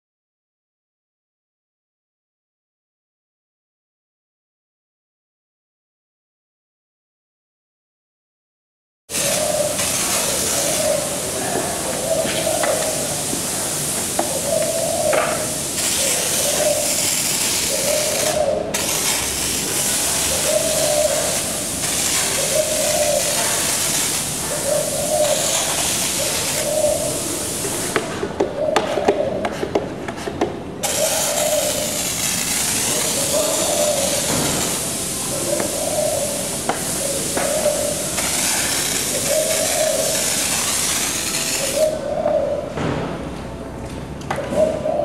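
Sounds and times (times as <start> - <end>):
pressure sprayer hissing: 9.1 - 28.2, 30.8 - 42.0.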